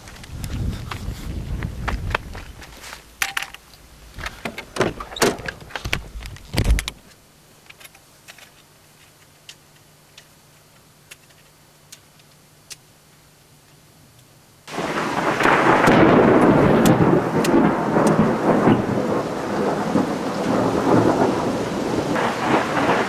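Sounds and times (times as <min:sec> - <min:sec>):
wind rumble on microphone: 0:00.0 - 0:03.2, 0:03.8 - 0:07.0, 0:14.9 - 0:23.0
faint steady hum: 0:00.0 - 0:19.5
handling knocks and clicks: 0:01.9 - 0:12.8
car door shutting: 0:04.2 - 0:07.0.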